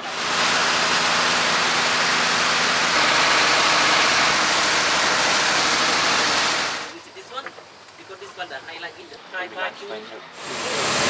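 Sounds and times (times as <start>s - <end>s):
boat engine droning: 0.0s - 6.9s.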